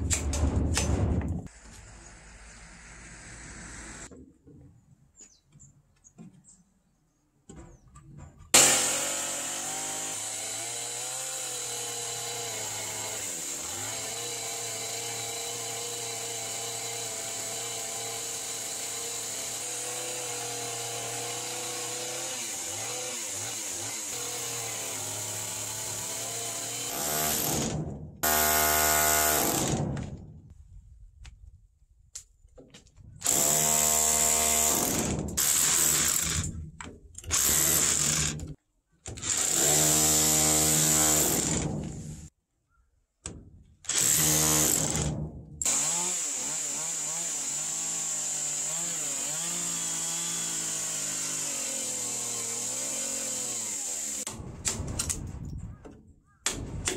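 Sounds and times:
chainsaw cutting wood: 8.5s - 30.3s, 33.2s - 36.6s, 37.2s - 42.2s, 43.9s - 54.3s
power drill boring wood: 8.6s - 29.8s, 33.2s - 36.5s, 37.3s - 38.5s, 39.1s - 41.8s, 43.9s - 54.3s.

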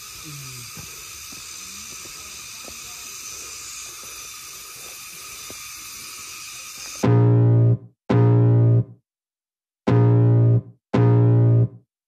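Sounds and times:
insect chorus: 0.0s - 7.0s
footsteps on stone steps: 0.6s - 5.6s.

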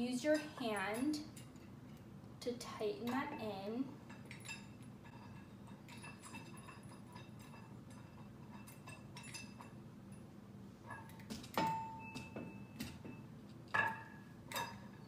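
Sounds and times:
louder metal clinks: 3.0s - 10.3s.

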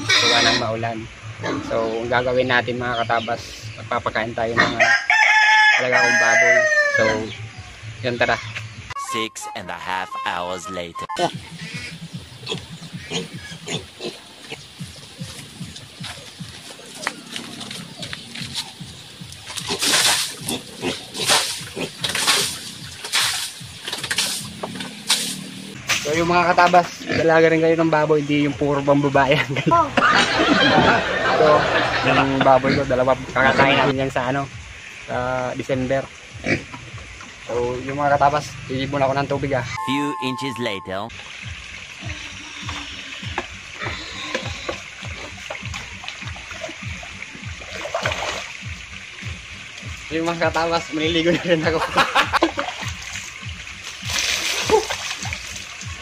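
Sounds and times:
pigs squealing and grunting: 0.0s - 0.8s, 1.4s - 2.0s, 4.4s - 7.7s, 11.5s - 15.5s, 16.1s - 18.9s, 19.6s - 22.8s, 26.6s - 27.6s, 30.0s - 33.9s, 42.1s - 45.4s
water sloshing in a bucket: 14.2s - 27.0s, 41.1s - 56.0s.

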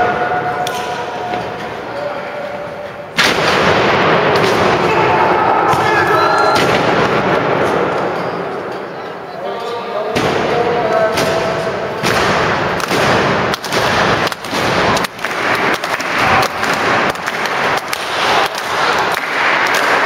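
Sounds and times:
rhythmic clapping: 12.0s - 20.0s
crowd cheering: 14.7s - 20.0s.

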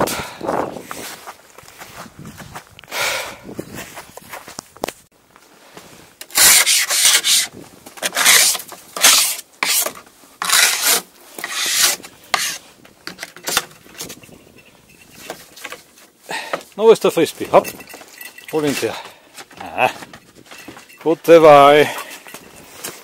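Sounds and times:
rough rubbing and scraping of skis: 0.0s - 2.6s, 5.4s - 16.5s.

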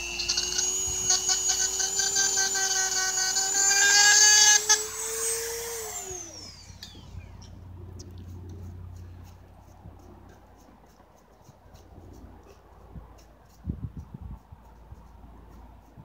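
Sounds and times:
power tool whining: 0.0s - 7.7s.

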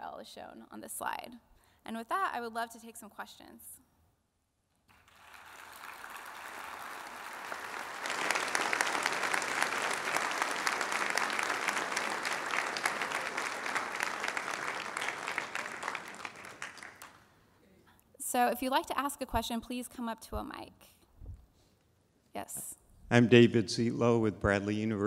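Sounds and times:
audience applauding: 4.9s - 17.4s.

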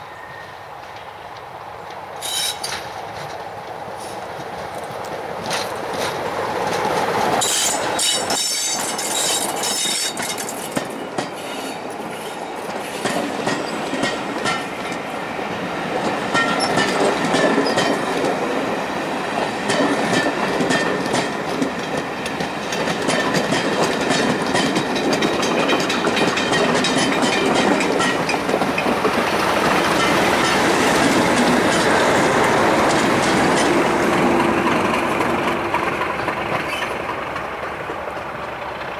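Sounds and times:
diesel locomotive passing: 0.0s - 38.9s
train wheels clattering over rail joints: 1.9s - 15.0s, 15.9s - 18.7s, 19.3s - 38.9s.

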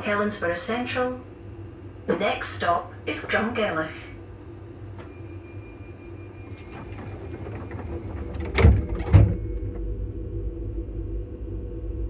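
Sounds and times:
train rumble: 0.0s - 12.0s
traction motor whine: 5.0s - 12.0s.

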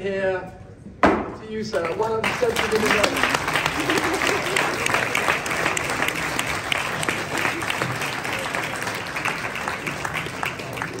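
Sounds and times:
crowd applauding: 1.8s - 11.0s.

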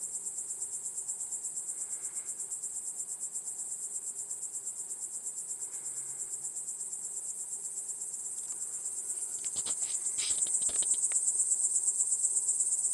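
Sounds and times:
crickets trilling: 0.0s - 12.9s
clicks and rustles: 9.2s - 11.2s.

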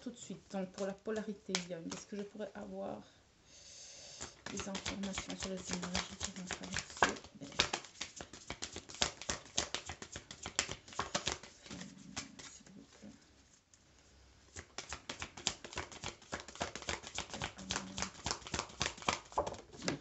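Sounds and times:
cards being shuffled: 0.8s - 2.3s, 4.2s - 13.0s, 14.5s - 20.0s.

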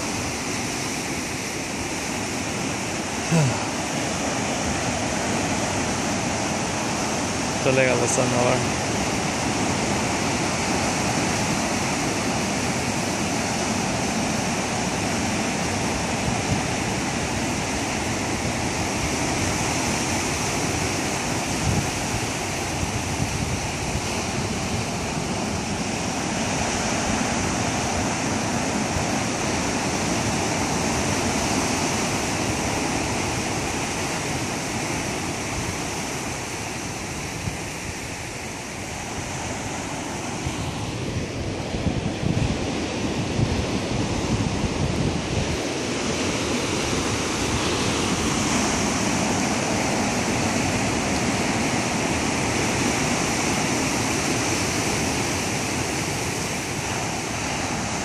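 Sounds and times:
surf washing over stony shore: 0.0s - 58.0s.

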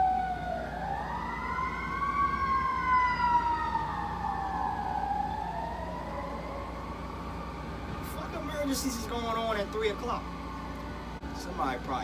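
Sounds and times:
emergency vehicle siren wailing: 0.0s - 12.0s.

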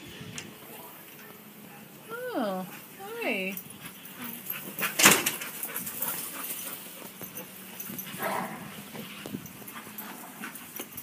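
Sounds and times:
faint clicks and rustles: 3.6s - 11.0s.

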